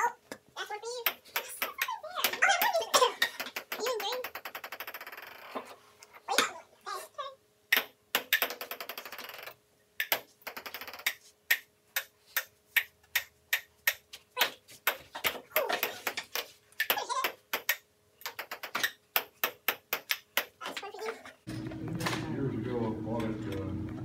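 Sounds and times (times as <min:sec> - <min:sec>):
table tennis ball clicking: 0:03.2 - 0:05.4, 0:07.7 - 0:15.0, 0:16.3 - 0:20.6.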